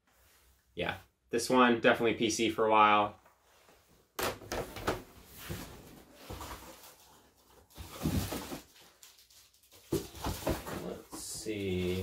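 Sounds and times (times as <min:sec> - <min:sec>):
plastic bag rustling: 0:05.5 - 0:11.0.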